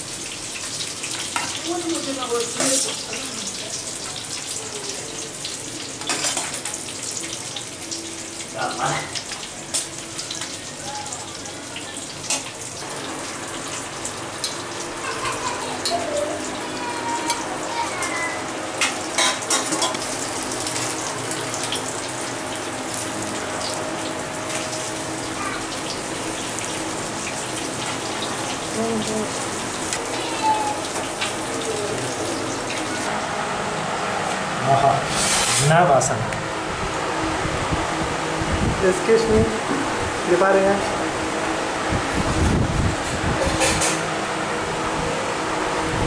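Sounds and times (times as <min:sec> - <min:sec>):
fish sizzling in oil: 0:00.0 - 0:34.1.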